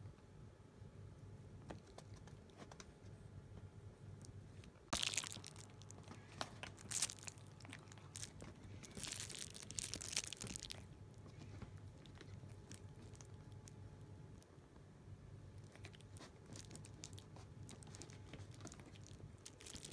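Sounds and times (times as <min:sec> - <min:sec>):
cats chewing: 0:04.2 - 0:14.4, 0:15.6 - 0:19.9
plastic packets crinkling: 0:04.9 - 0:10.9, 0:15.9 - 0:19.9.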